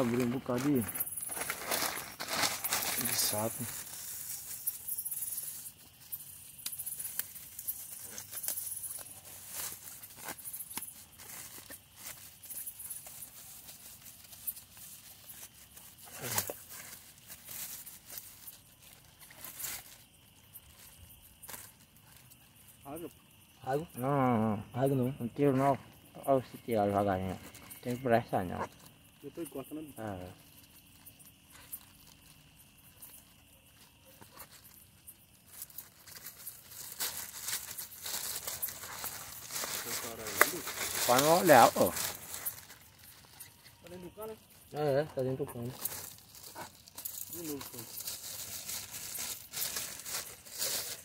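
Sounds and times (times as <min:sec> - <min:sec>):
plastic bag crinkling: 0:00.0 - 0:22.4, 0:30.4 - 0:33.5, 0:34.4 - 0:43.6, 0:45.6 - 0:51.0.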